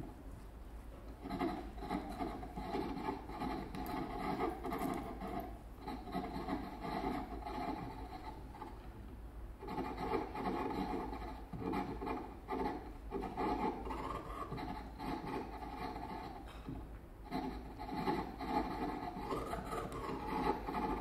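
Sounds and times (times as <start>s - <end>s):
rubbed and scraped experimental music: 1.2s - 8.7s, 9.6s - 16.5s, 17.2s - 21.0s.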